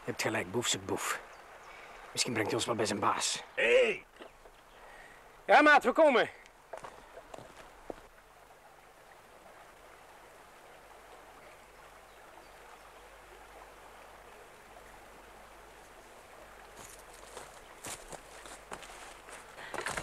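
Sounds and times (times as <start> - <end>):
footsteps scuffing down a bank: 6.7 - 8.1, 16.7 - 20.0.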